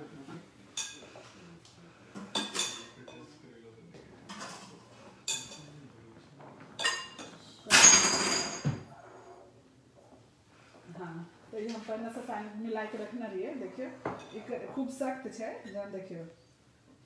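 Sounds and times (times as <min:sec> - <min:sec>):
glass bowl clinking: 0:02.3 - 0:03.3, 0:04.3 - 0:05.8, 0:06.8 - 0:08.8.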